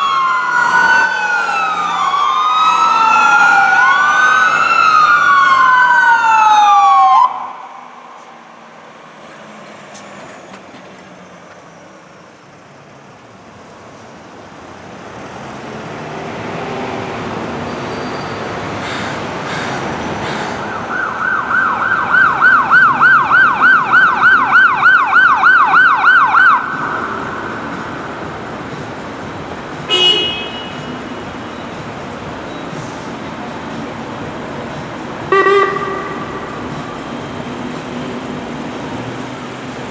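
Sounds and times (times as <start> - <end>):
emergency siren yelping: 0.0 - 8.2, 20.6 - 27.9, 35.3 - 36.6
street traffic: 0.0 - 39.9.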